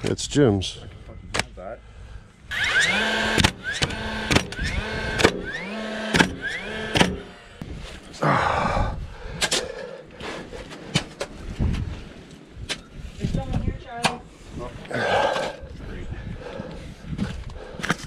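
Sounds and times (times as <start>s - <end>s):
nailer motor whining: 2.5s - 7.6s
nail firing with sharp crack: 3.3s - 5.4s, 6.1s - 7.2s.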